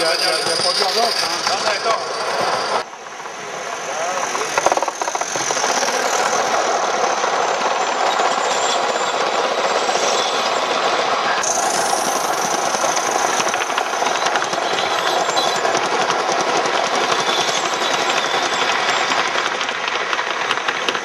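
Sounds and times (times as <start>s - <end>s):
steam locomotive exhaust: 0.0s - 21.0s
train wheels clattering over rails: 0.0s - 21.0s.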